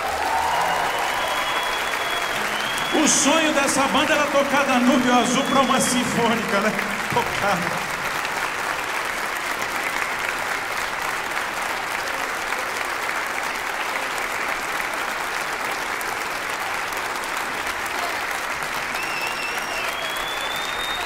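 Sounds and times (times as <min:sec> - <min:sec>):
audience applauding: 0:00.0 - 0:21.0
whistle: 0:00.6 - 0:03.5, 0:18.9 - 0:21.0.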